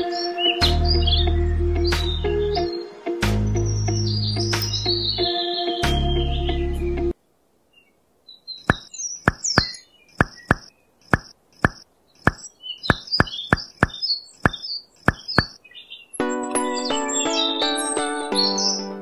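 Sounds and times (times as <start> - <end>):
background music: 0.0 - 7.2, 16.2 - 19.0.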